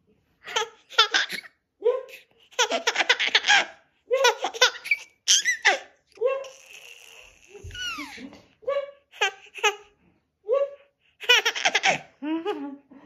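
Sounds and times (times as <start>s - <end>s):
baby laughing: 0.4s - 8.3s, 9.1s - 9.9s, 11.2s - 12.6s.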